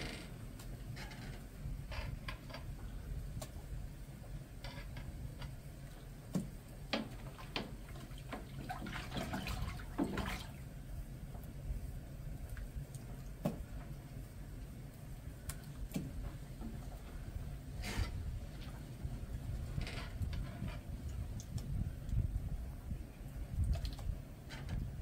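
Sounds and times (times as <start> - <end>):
buttermilk sloshing and dripping: 6.0 - 14.3
water splashing: 7.0 - 10.6.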